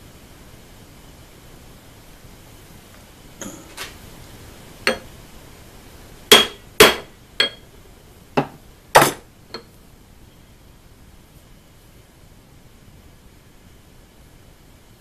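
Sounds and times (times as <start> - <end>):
small hammer tapping metal: 4.9 - 5.1, 6.3 - 7.7.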